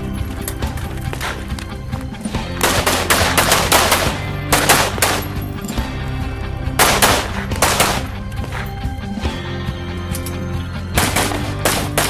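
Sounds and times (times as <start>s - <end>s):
rifle shots: 2.6s - 5.4s, 6.8s - 8.1s, 11.0s - 12.0s.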